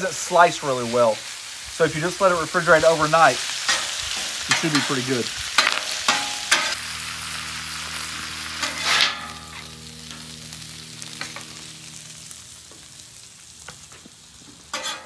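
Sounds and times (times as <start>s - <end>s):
meat sizzling on griddle: 0.0s - 15.0s
metal spatula scraping: 7.7s - 12.1s, 14.7s - 15.0s.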